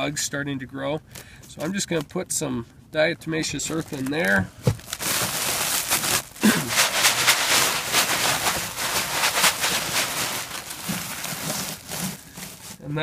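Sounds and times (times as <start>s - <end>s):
cloth sack rustling: 3.6s - 13.0s
feed shifting in sack: 3.6s - 13.0s.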